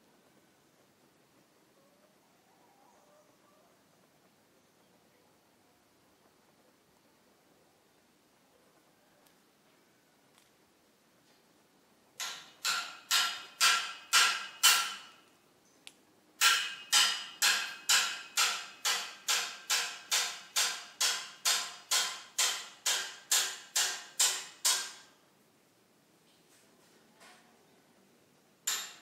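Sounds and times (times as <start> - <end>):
sharp ringing knocks: 12.2 - 15.2, 16.4 - 25.1, 28.7 - 29.0.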